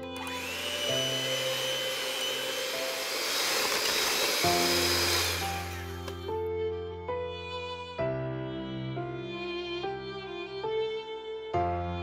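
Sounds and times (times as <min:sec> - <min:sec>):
electric hand mixer whirring: 0:00.0 - 0:06.3.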